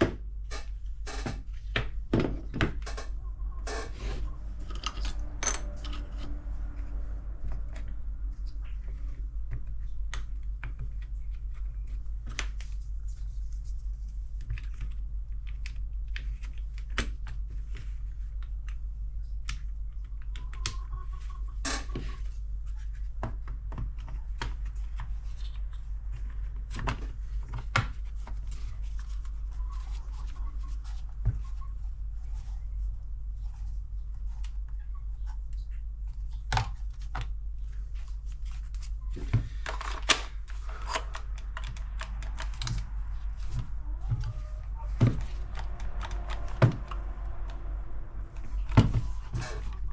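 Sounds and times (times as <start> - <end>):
steady low hum: 0.0 - 49.9
plastic parts clicking and tapping: 39.3 - 42.9.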